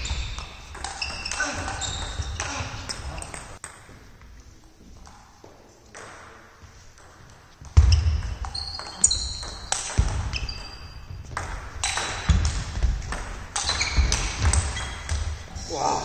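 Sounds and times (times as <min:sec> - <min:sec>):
shoes squeaking on floor: 0:00.0 - 0:06.0, 0:06.6 - 0:15.6.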